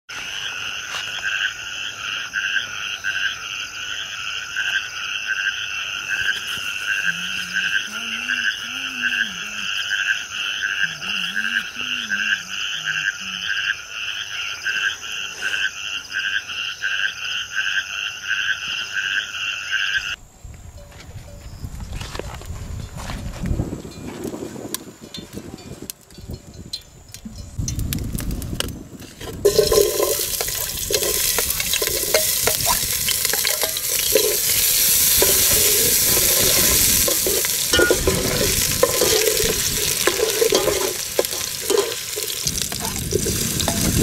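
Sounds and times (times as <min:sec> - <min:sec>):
frogs calling: 0:00.1 - 0:20.2, 0:29.5 - 0:44.0
high-pitched hiss: 0:29.4 - 0:44.0.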